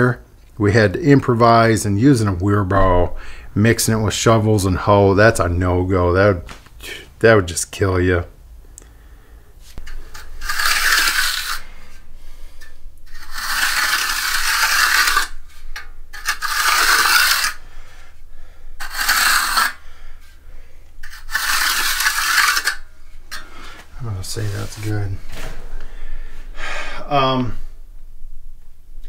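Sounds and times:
trowel scraping wet concrete: 9.8 - 11.6, 12.6 - 17.6, 18.8 - 19.8, 21.0 - 23.5.

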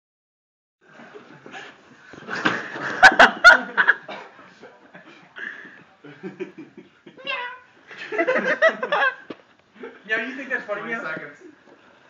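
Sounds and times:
people laughing: 0.9 - 7.2, 7.9 - 10.6.

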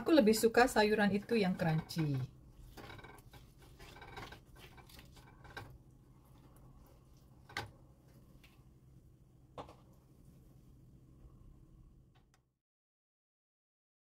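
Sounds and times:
low steady hum: 0.0 - 12.5
spatula stirring in frying pan: 1.2 - 7.6.

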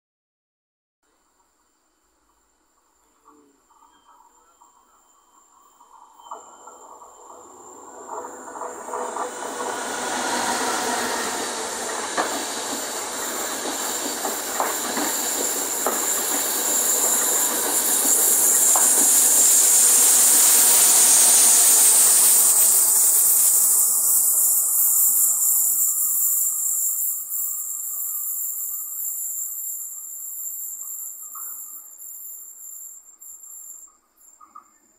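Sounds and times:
high hiss: 1.1 - 34.9
insects chirring: 1.1 - 34.9
train wheels rolling: 2.2 - 34.9
wheels clicking over rail joints: 6.2 - 19.9.

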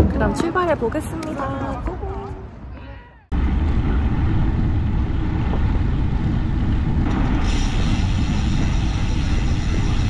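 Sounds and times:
wind rushing over microphone: 0.0 - 10.0
bright hiss: 7.2 - 10.0.

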